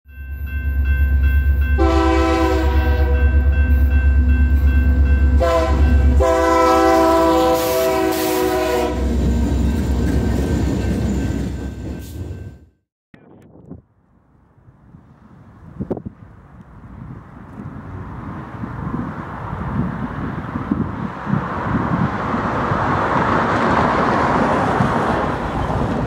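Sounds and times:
crossing bell ringing: 0.0s - 6.4s, 8.8s - 12.8s
locomotive air horn blasts: 1.8s - 3.4s, 5.3s - 9.2s.

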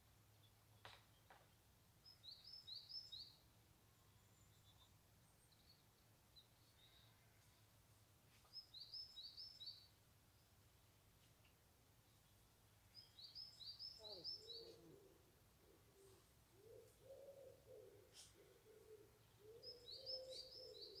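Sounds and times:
songbird singing high phrases: 2.1s - 3.4s, 8.5s - 9.9s, 12.9s - 14.8s, 19.3s - 21.0s
faint bird chirps: 4.0s - 7.7s, 11.4s - 21.0s.

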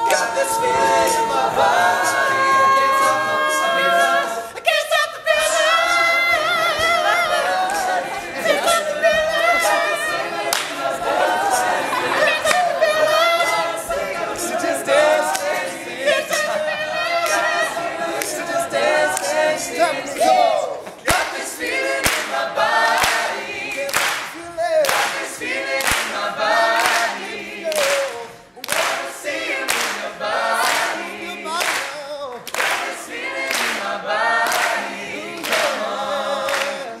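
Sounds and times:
men singing a cappella harmony: 0.0s - 25.2s, 33.2s - 37.0s
sharp clap-like beat: 20.8s - 35.8s.

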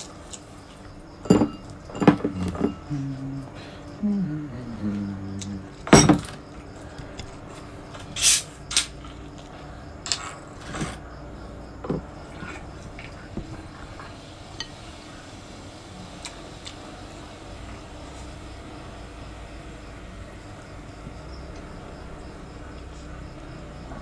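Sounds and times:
tableware clinking: 1.2s - 3.0s, 5.8s - 6.4s
plastic bottle cap hissing open: 8.2s - 8.9s.

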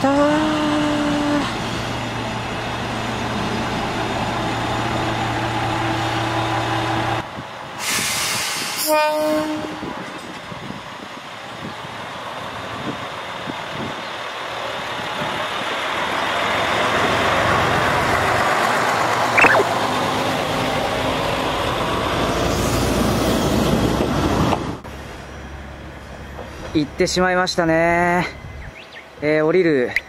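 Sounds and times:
diesel railcar engine and wheels: 0.0s - 19.3s, 19.9s - 30.0s
short squeak: 19.4s - 19.7s.

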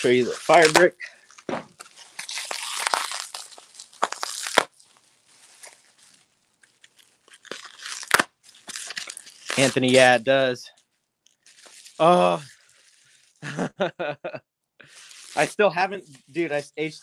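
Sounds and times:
bubble wrap crinkling: 0.0s - 13.5s, 14.8s - 17.0s
bubble wrap rustling: 0.0s - 13.5s, 14.8s - 17.0s
bubble wrap snap: 0.5s - 5.0s, 5.6s - 9.8s.

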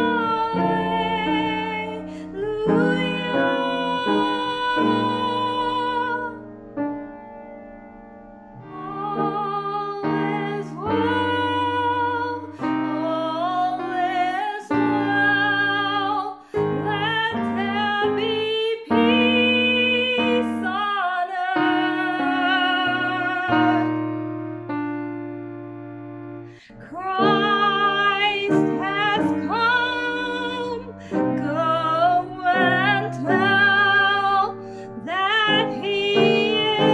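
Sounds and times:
woman singing a ballad: 0.0s - 6.6s, 8.6s - 24.4s, 26.6s - 36.9s
piano accompaniment: 0.0s - 36.9s.

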